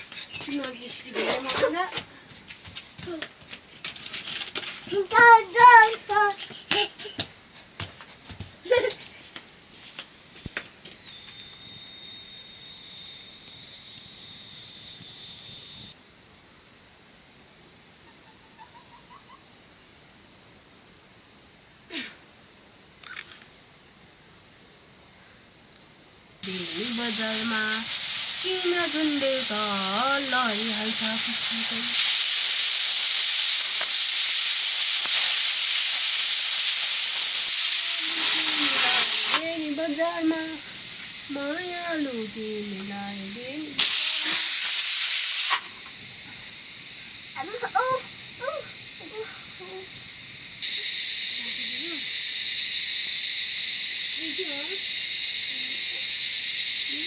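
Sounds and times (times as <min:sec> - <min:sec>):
loud steady hiss: 0:00.0 - 0:07.8, 0:08.6 - 0:57.0
high-pitched insect buzz: 0:10.4 - 0:16.0, 0:22.8 - 0:23.8, 0:26.4 - 0:57.0.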